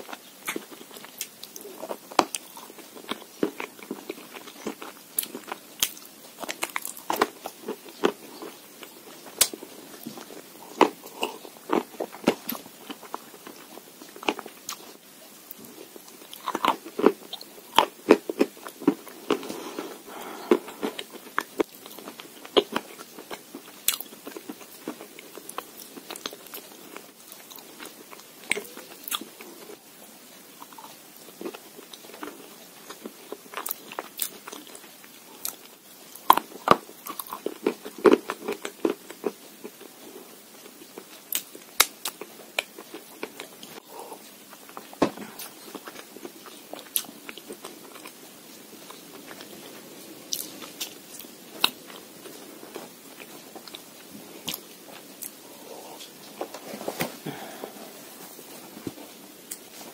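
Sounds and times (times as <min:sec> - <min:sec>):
chalk and clay crunching when chewed: 0:00.0 - 0:29.8, 0:30.6 - 0:48.2.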